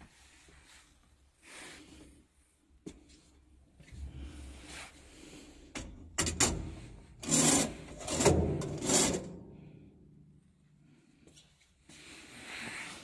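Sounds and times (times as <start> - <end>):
metal plate scraping sheet metal: 7.2 - 9.4.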